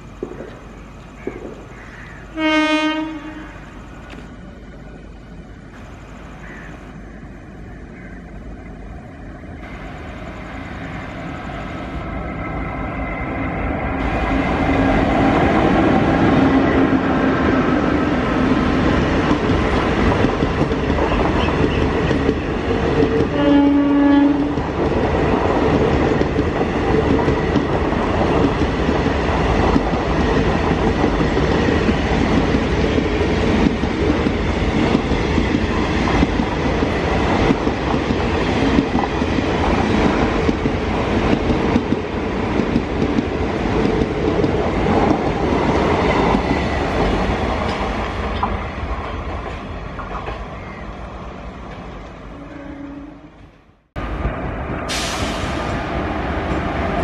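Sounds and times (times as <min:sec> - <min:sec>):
train coaches rumbling: 0:00.0 - 0:57.0
train horn: 0:02.3 - 0:03.8, 0:23.2 - 0:24.6, 0:52.3 - 0:53.4
wheels clicking over rail joints: 0:18.7 - 0:23.4, 0:24.3 - 0:50.8.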